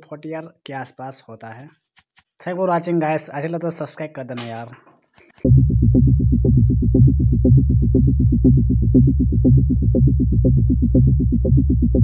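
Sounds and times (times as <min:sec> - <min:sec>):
electronic music with synth bass: 0:05.4 - 0:12.0.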